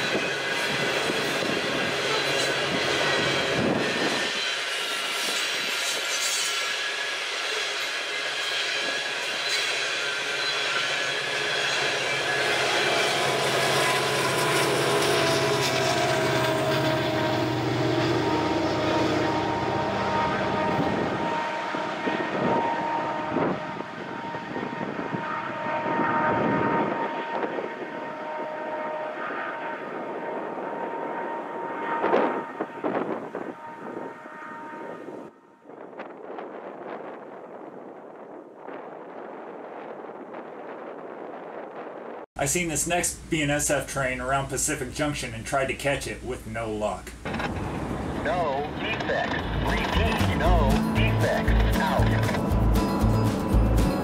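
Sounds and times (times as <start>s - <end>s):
train wheels rumbling and clattering: 0.0s - 22.8s, 47.2s - 54.0s.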